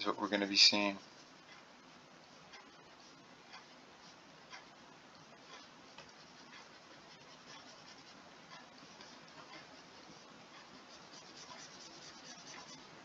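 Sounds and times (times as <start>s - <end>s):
stylus scratching on drawing tablet: 0.3s - 13.0s.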